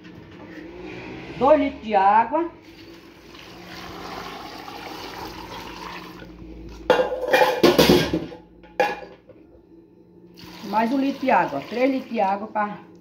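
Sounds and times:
water pouring and splashing into pot: 2.6 - 6.3, 10.4 - 12.1
metal cookware clattering: 6.9 - 9.2.

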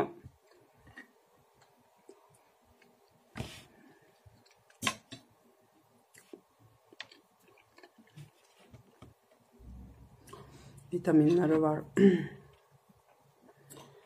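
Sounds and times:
quiet chewing: 6.1 - 10.8.

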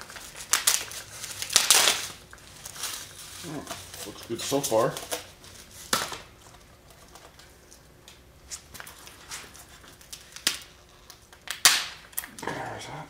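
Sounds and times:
mold material cracking and tearing: 0.0 - 5.2.

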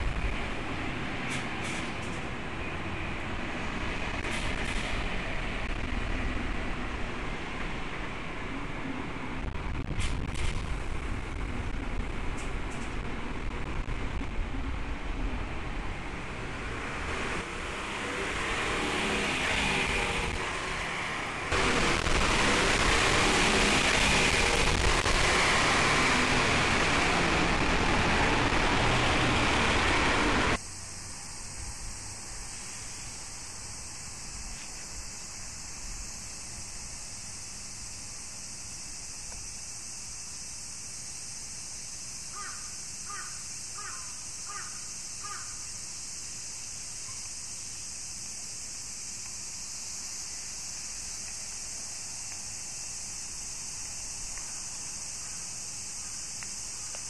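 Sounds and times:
moving vehicle rushing noise: 0.0 - 30.6
faint steady hiss: 0.0 - 57.0
crow cawing: 42.3 - 45.6.

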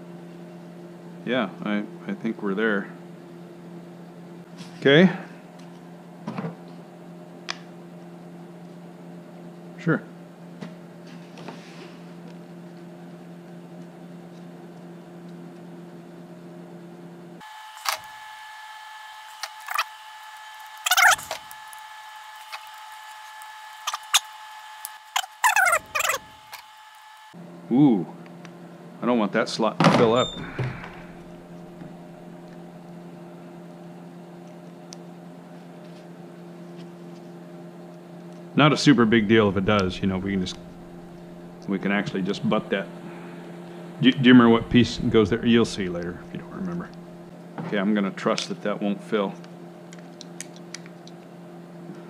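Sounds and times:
low machine hum: 0.0 - 52.0
steady low hum: 27.2 - 50.6.

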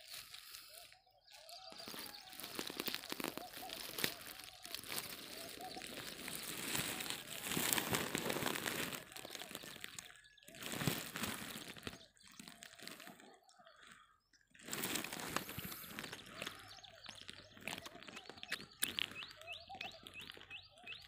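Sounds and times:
crackling rustling with clicks: 0.0 - 21.0.

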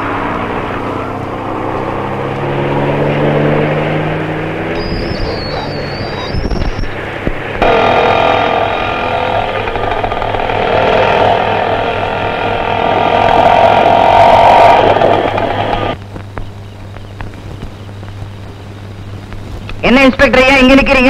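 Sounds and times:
car engine pulling away: 0.0 - 16.0
small motorcycle engine running: 0.0 - 18.1.

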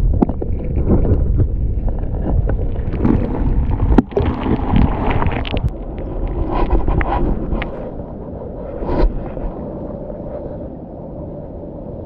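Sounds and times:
water clicks and splashes: 0.0 - 7.9
wind buffeting microphone: 0.0 - 12.0.

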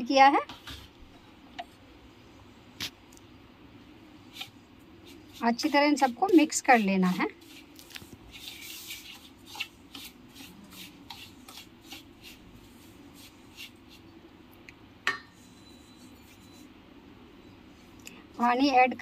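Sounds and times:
metal spoon scraping a bowl: 15.4 - 16.7.

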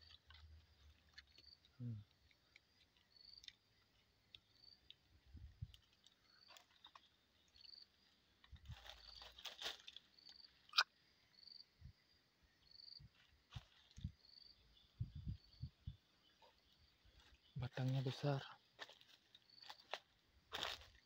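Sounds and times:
insect chirping: 0.0 - 21.0
rustling: 8.4 - 10.3.

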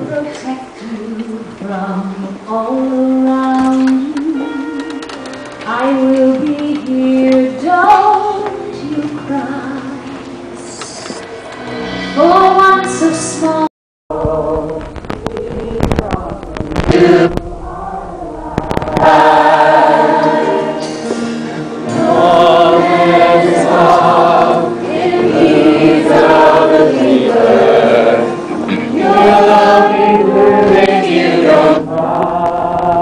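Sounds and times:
ensemble singing in chorus: 14.1 - 33.0.

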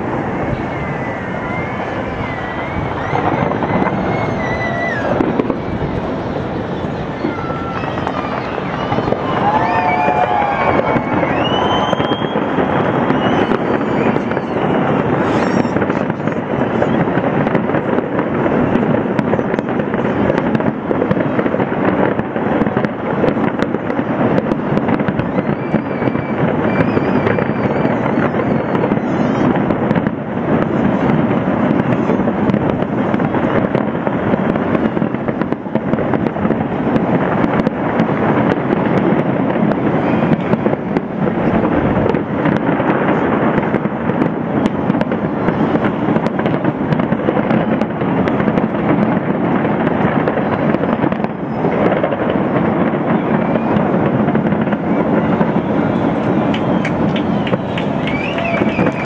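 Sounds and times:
fireworks bangs and crackles: 0.0 - 59.0
faint high wavering whistles: 11.0 - 12.4, 58.0 - 59.0.

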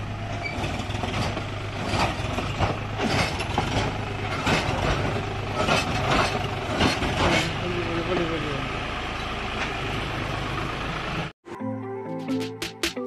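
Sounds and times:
tractor diesel engine running: 0.0 - 11.4
knocks and clatters: 0.2 - 7.6.

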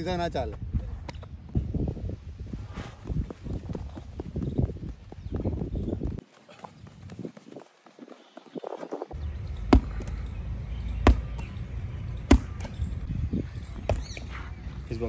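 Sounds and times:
medicine ball thudding on wall: 9.7 - 10.1, 11.0 - 11.4, 12.3 - 12.7.

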